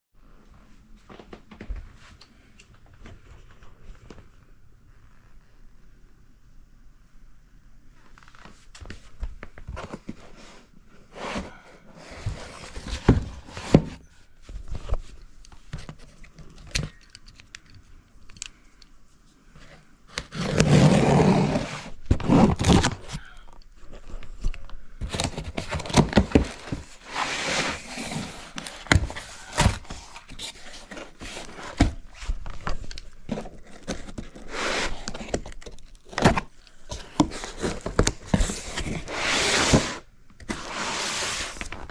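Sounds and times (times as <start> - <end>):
cardboard box scraping and tearing: 20.2 - 23.1, 25.1 - 32.0, 37.2 - 41.8.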